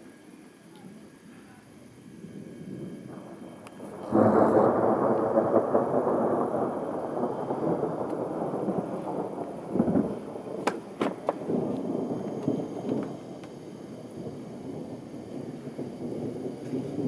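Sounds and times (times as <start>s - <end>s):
thunder clap and rumble: 2.1s - 17.0s.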